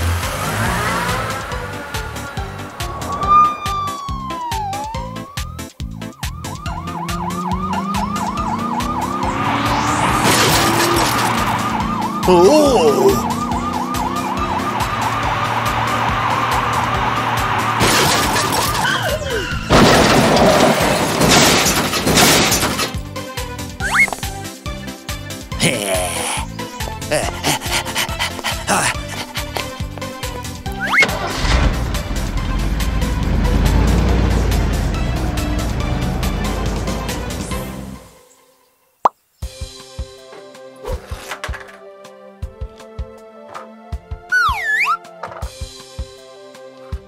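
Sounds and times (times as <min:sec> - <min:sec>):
background music: 0:00.0 - 0:19.9, 0:20.5 - 0:47.0
police siren wailing: 0:00.4 - 0:19.8
loud crashes: 0:17.6 - 0:23.0, 0:30.9 - 0:33.3.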